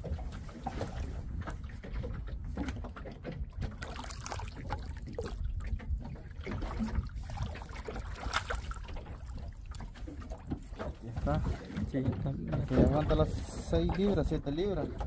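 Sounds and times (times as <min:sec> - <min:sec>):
water trickling and splashing: 0:00.0 - 0:15.0
knocks against boat hull: 0:09.8 - 0:14.2.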